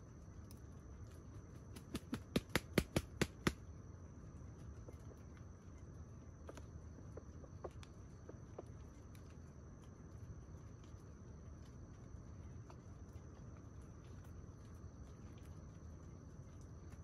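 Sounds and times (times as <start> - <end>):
insects trilling: 0.1 - 17.0
sharp clicks: 1.8 - 3.6.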